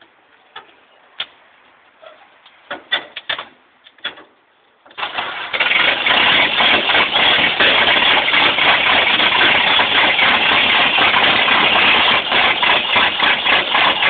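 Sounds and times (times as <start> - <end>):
truck engine running rough: 5.0 - 14.0.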